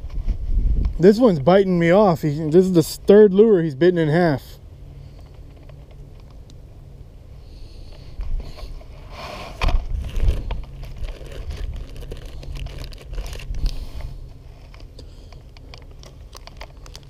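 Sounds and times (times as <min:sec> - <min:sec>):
plastic bag crinkling: 0:09.9 - 0:17.0.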